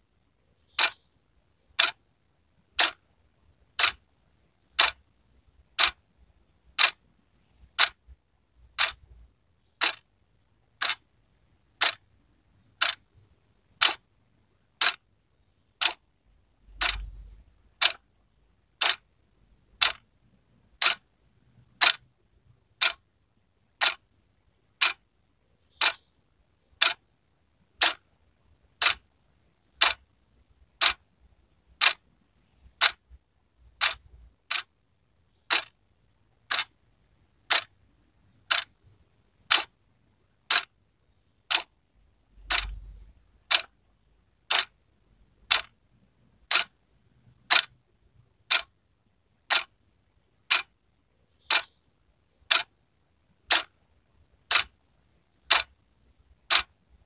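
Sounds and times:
wall clock ticking: 0.7s - 1.1s, 1.8s - 2.0s, 2.6s - 6.1s, 6.7s - 10.1s, 10.7s - 11.1s, 11.7s - 15.1s, 15.8s - 19.1s, 19.7s - 23.1s, 23.7s - 24.1s, 24.7s - 25.1s, 25.7s - 26.1s, 26.7s - 27.1s, 27.7s - 31.1s, 31.7s - 41.8s, 42.4s - 48.8s, 49.4s - 49.8s, 50.4s - 50.8s, 51.4s - 51.8s, 52.4s - 52.8s, 53.4s - 53.8s, 54.4s - 56.8s.

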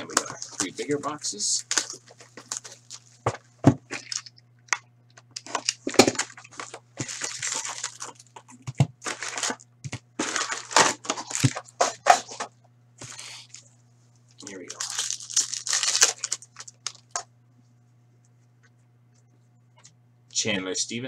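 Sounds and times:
foil packs rustling: 0.0s - 4.3s, 5.4s - 8.4s, 9.0s - 12.5s, 14.4s - 17.2s
plastic wrap crinkling and tearing: 0.0s - 4.4s, 5.4s - 12.4s, 14.4s - 17.2s.

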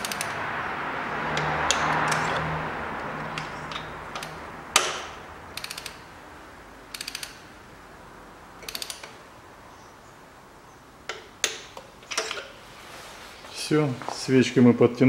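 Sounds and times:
rapid ratchet clicking: 0.0s - 0.4s, 3.4s - 6.1s, 6.9s - 7.5s, 8.6s - 9.2s
torque wrench click: 3.4s - 6.0s, 6.9s - 7.4s, 8.6s - 9.2s.

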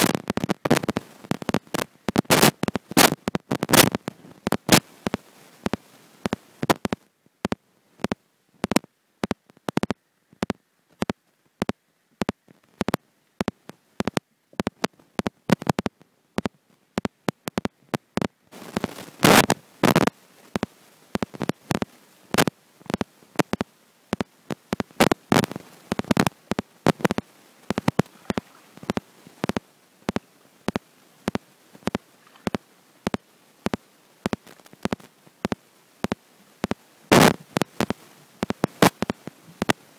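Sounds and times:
underwater clicks and pops: 26.9s - 36.2s.

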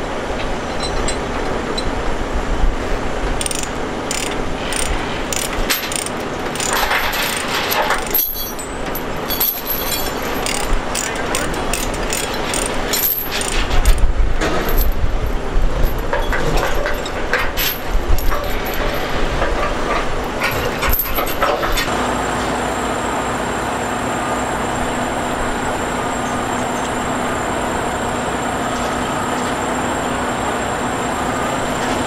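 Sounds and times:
steady background noise: 0.0s - 32.0s
metal chains clinking and rattling: 3.4s - 19.2s, 20.4s - 21.8s.

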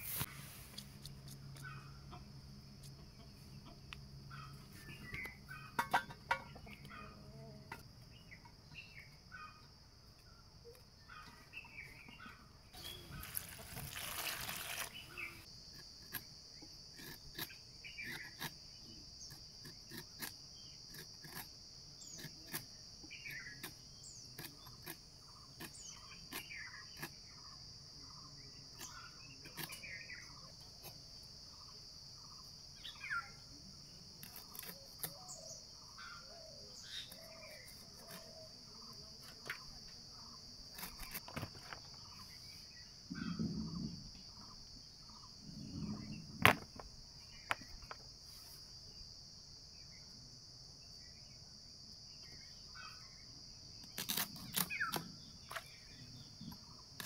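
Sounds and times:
insects chirring: 0.0s - 57.0s
bird calls: 2.9s - 7.4s, 8.1s - 15.5s, 17.0s - 20.0s, 34.3s - 48.0s.

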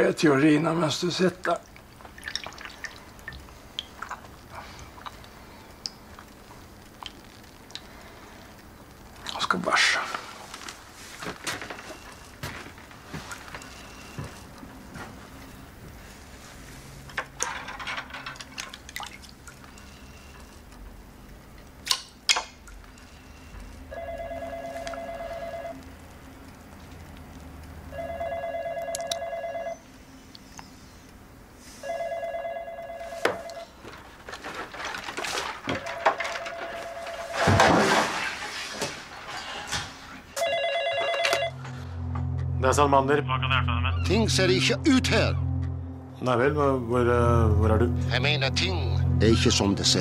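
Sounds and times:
telephone electronic buzzing ring: 23.1s - 25.8s, 27.9s - 29.8s, 31.8s - 33.7s, 40.4s - 42.1s.

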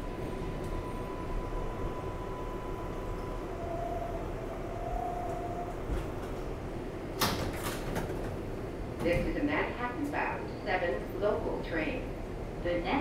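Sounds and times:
faint steady whine: 0.0s - 7.2s
subway car rumble: 0.0s - 13.0s
clatter of clicks and rattles: 7.2s - 8.4s.

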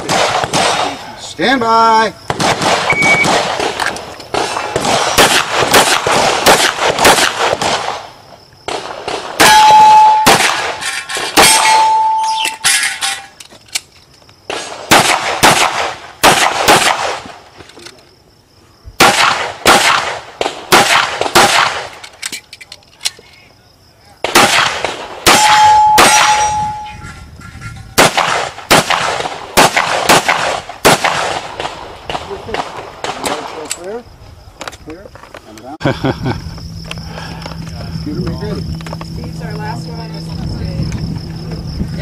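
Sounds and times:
rapid handgun fire: 0.0s - 1.0s, 2.3s - 8.1s, 10.2s - 11.9s, 14.5s - 17.3s, 19.0s - 21.9s, 24.2s - 26.4s, 28.0s - 33.6s
steel targets ringing: 9.4s - 10.4s, 11.4s - 13.4s, 25.3s - 27.8s.

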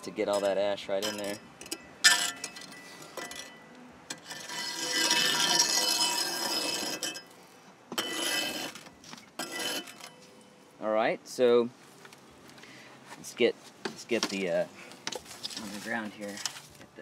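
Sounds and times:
coals clinking against metal: 0.0s - 10.6s
metal scraper dragging coals: 0.0s - 10.6s, 15.2s - 16.8s.

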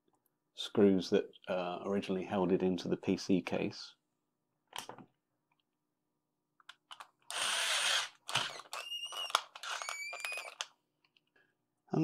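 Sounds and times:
electric screwdriver motor whining: 7.3s - 10.7s.

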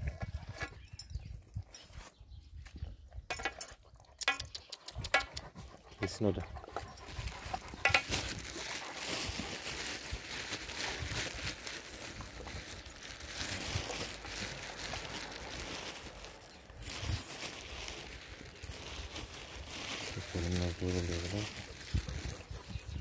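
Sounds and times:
dogs licking and chewing: 3.8s - 16.7s.

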